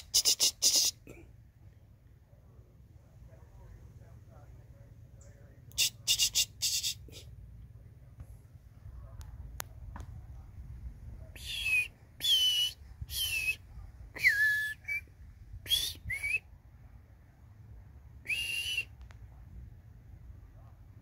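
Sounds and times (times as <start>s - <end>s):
short breathy whistles: 11.4s - 16.5s, 18.3s - 19.0s.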